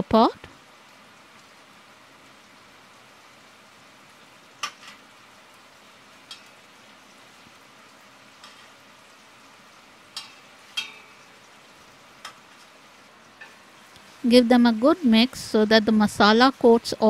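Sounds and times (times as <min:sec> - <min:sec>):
faint sizzle: 0:00.0 - 0:17.0
metal utensil clinking on pot: 0:10.1 - 0:11.2.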